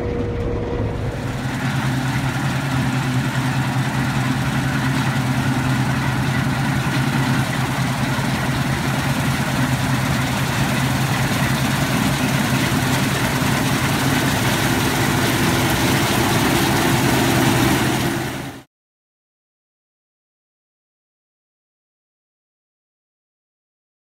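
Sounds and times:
combine harvester droning: 0.0s - 18.7s.

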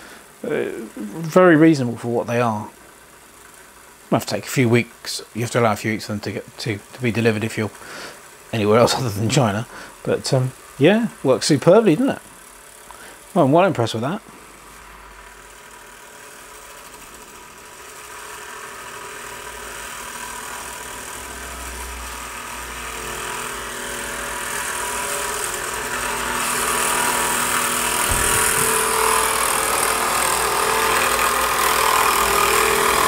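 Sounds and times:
faint humming tones: 0.0s - 2.9s, 3.7s - 15.2s, 24.9s - 32.8s
steam jets hissing: 28.0s - 30.3s.

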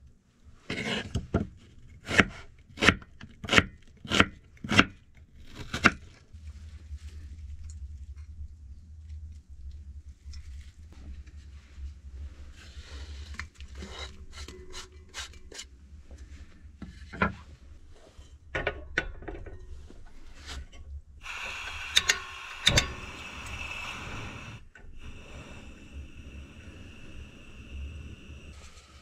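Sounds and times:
igniter clicks: 21.2s - 28.2s
gas burner hissing: 21.2s - 29.0s.

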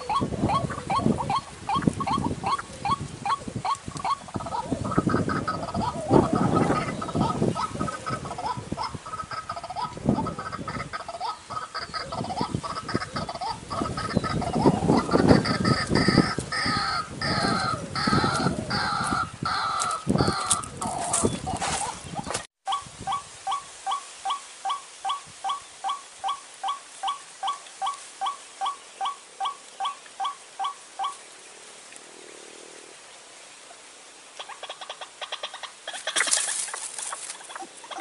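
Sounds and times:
bird croaking calls: 0.0s - 31.3s, 34.4s - 38.0s.

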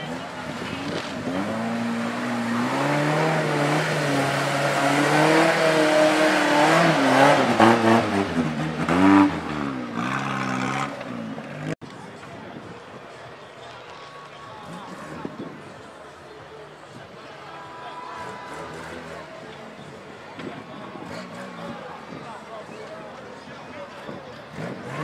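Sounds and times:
off-road vehicle engine revving: 0.0s - 11.8s, 18.2s - 19.5s, 20.9s - 22.1s, 24.4s - 25.0s.

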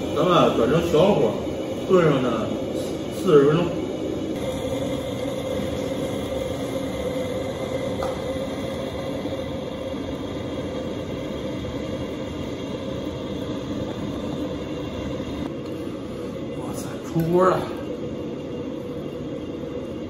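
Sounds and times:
gas burner running: 0.0s - 20.0s
liquid bubbling at a simmer: 2.5s - 16.5s.

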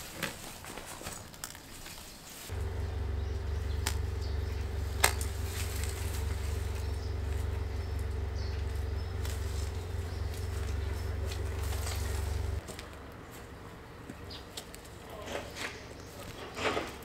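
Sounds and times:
steady low hum: 2.5s - 15.2s.

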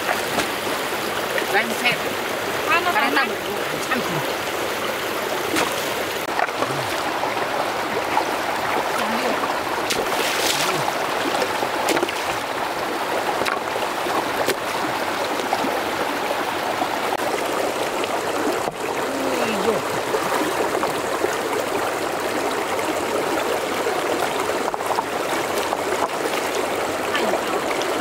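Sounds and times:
shallow stream flowing: 0.0s - 28.0s
splashes in water: 5.4s - 15.8s.

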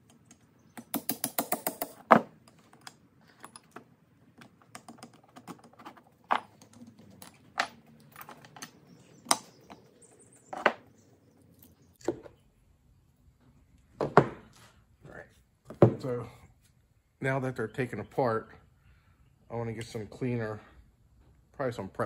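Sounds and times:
brake parts clicking and clunking: 1.8s - 11.0s.

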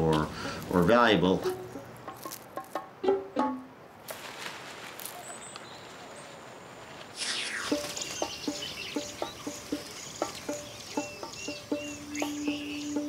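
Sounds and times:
plucked-string background music: 1.2s - 3.8s, 8.4s - 13.0s
downward pitch sweep: 7.2s - 9.0s
faint bird chirps: 7.2s - 13.0s.

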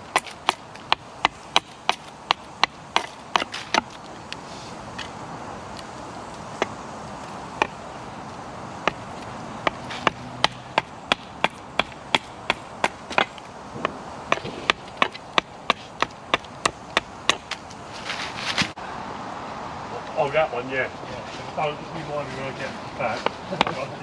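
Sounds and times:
hatchet chopping wood: 0.0s - 4.1s, 6.6s - 6.8s, 7.5s - 7.8s, 8.8s - 17.7s.

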